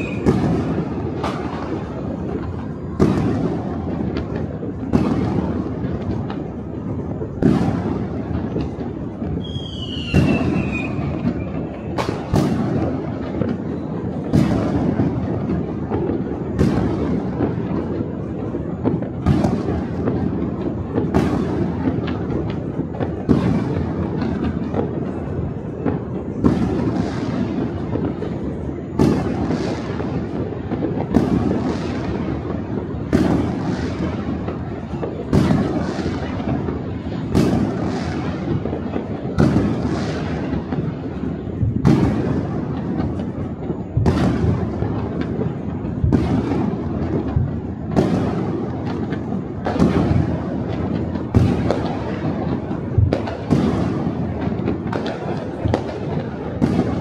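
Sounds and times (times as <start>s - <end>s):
sharp firework bang echoing: 0.0s - 6.3s, 7.4s - 13.6s, 29.0s - 40.9s, 44.0s - 56.0s
distant fireworks booms and crackles: 0.0s - 57.0s.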